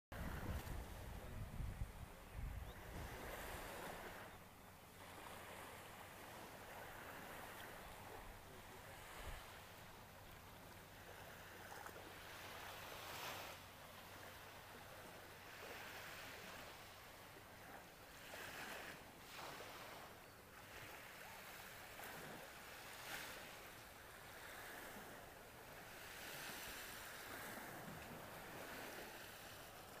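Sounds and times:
calm sea wash: 0:00.1 - 0:30.0
light breeze: 0:00.1 - 0:30.0.

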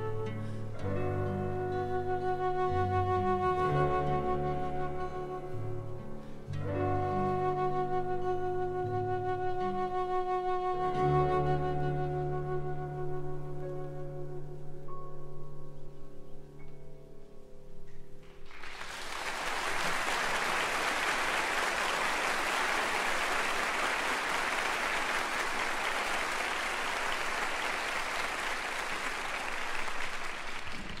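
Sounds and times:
audience applause: 0:18.4 - 0:31.0.

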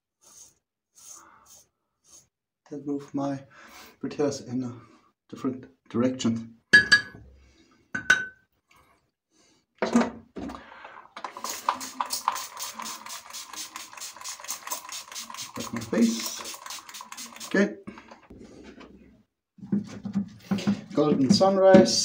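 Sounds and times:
razor clicking scrapes: 0:11.3 - 0:18.3.

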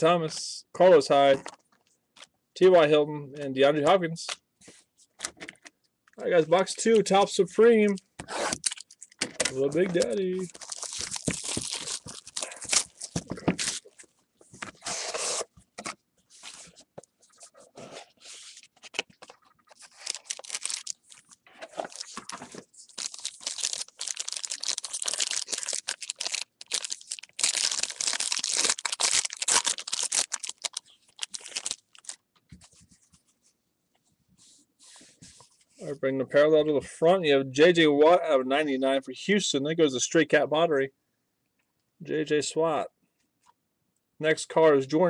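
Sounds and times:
foil wrapper tearing and crinkling: 0:09.9 - 0:14.0, 0:19.7 - 0:32.2.

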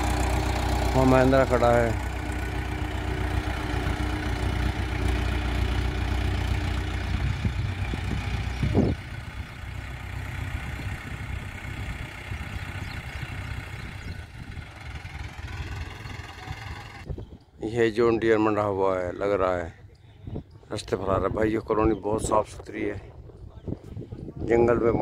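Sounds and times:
tractor engine running: 0:00.0 - 0:17.1.

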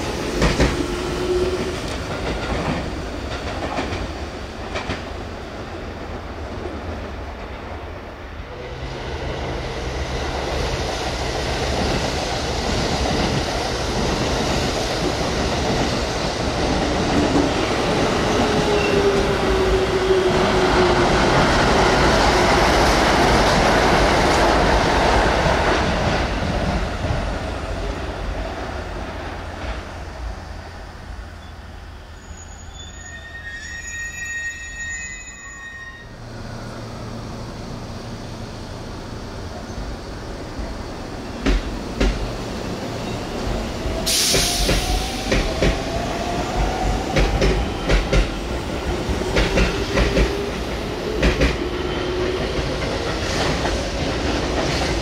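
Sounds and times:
train wheels on rails: 0:00.0 - 0:31.5, 0:36.2 - 0:55.0
train wheels squealing: 0:18.2 - 0:20.6, 0:31.4 - 0:36.3, 0:42.9 - 0:45.6.

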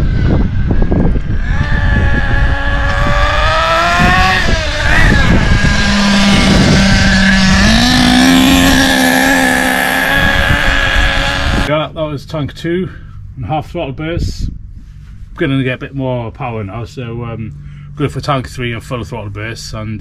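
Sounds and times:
nitro model car engine whining: 0:00.0 - 0:11.7.

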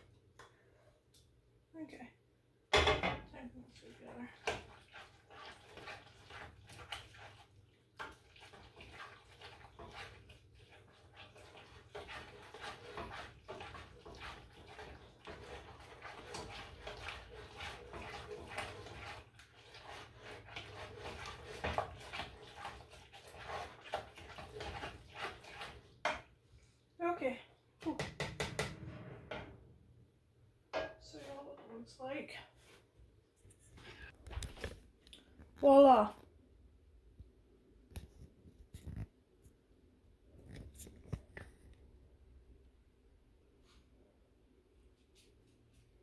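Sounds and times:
spoon scraping a pot: 0:04.4 - 0:26.3.

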